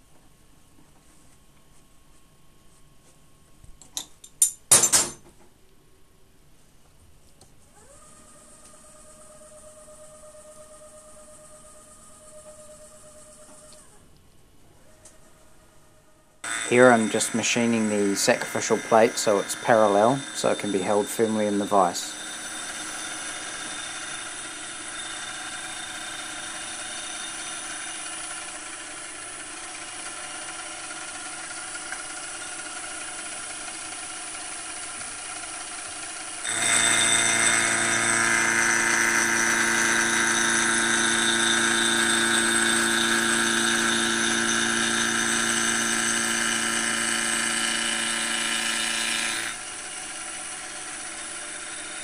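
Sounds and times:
machine cutting noise: 16.4 - 52.0
milling machine hum and whine: 16.4 - 52.0.

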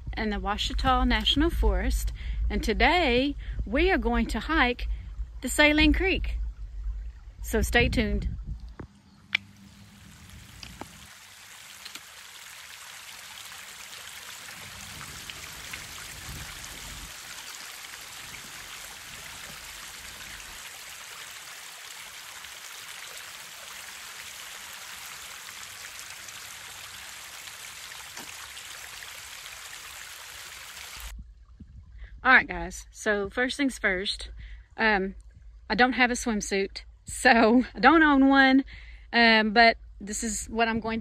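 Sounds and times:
creek water running over rocks: 8.4 - 31.2.

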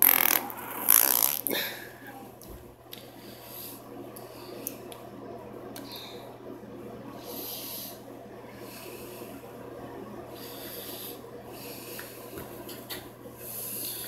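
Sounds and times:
steady low hum: 0.0 - 14.0
person breathing: 1.5 - 2.3, 3.0 - 4.7, 7.2 - 9.4, 10.3 - 12.4, 13.4 - 14.0.

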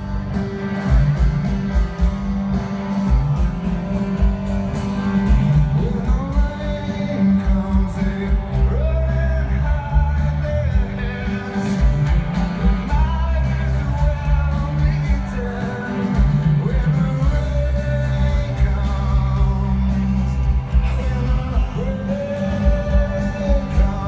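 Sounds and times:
live rock band: 0.0 - 24.0
lead vocalist singing: 5.6 - 24.0.

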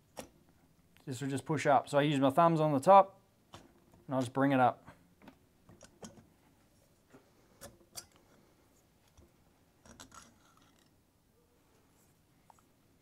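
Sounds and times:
faint metal clicks and scrapes: 5.2 - 11.0.

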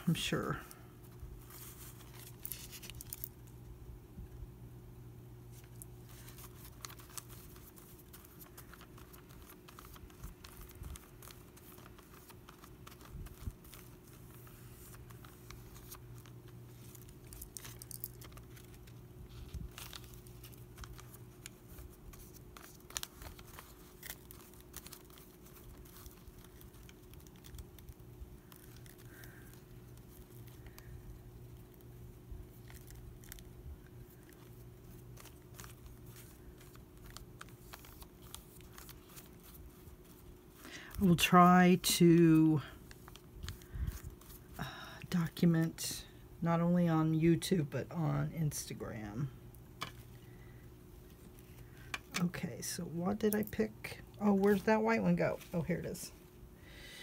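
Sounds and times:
steady low hum: 0.0 - 57.0
paper rustling: 0.6 - 3.4, 5.5 - 44.6, 54.2 - 56.3.

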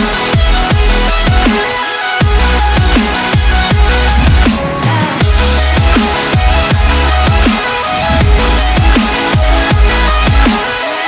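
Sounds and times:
electronic music with beat: 0.0 - 11.0
deep sliding bass notes: 2.4 - 10.5.

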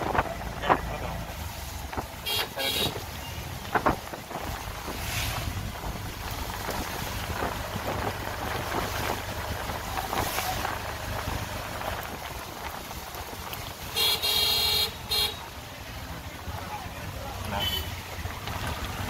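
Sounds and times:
wind noise on microphone: 0.0 - 15.2
vehicle engine rumble: 0.0 - 19.0.

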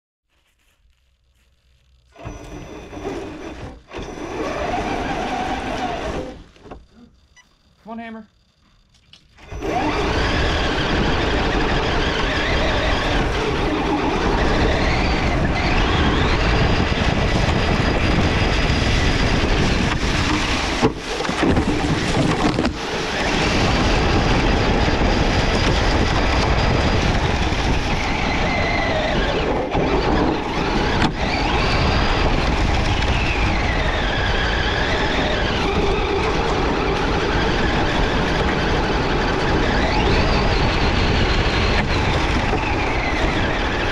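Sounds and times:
electric motor whine: 1.2 - 43.9
rc truck rumbling and rattling: 2.0 - 7.8, 8.8 - 43.9.

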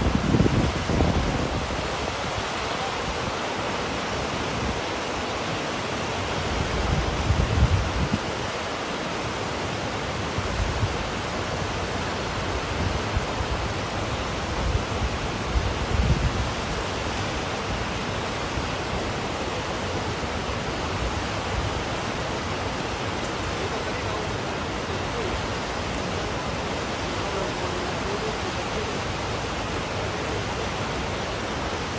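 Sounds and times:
wind buffeting microphone: 0.0 - 3.3, 6.4 - 8.6, 12.5 - 19.2
waterfall rushing: 0.0 - 31.9.

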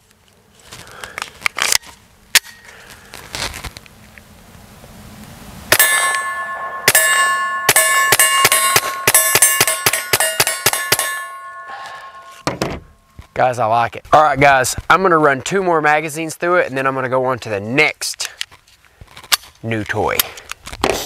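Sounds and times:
steel targets ringing: 5.7 - 13.2.

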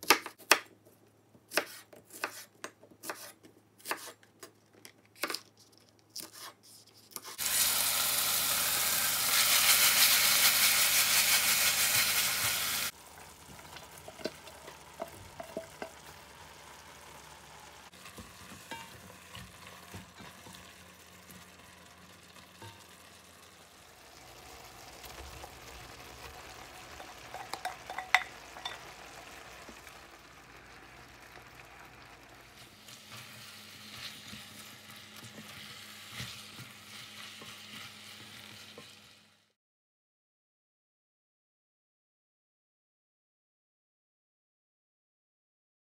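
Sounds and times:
knife chopping on cutting board: 0.0 - 0.7, 1.5 - 4.2
food sizzling in a pan: 7.3 - 39.6
spatula scraping and tapping pan: 13.5 - 16.2, 18.0 - 21.4, 22.5 - 23.0, 27.0 - 28.9.

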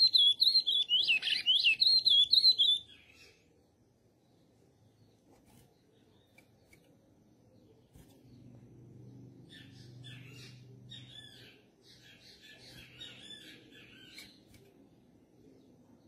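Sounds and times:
bird twittering song: 0.0 - 16.0
faint low hum: 2.3 - 16.0.

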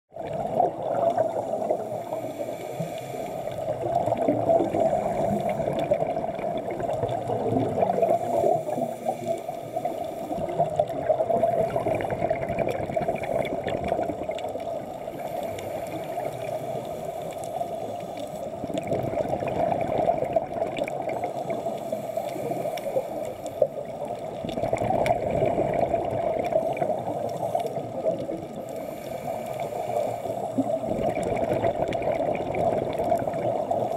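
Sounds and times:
underwater bubbles gurgling: 0.1 - 33.9.

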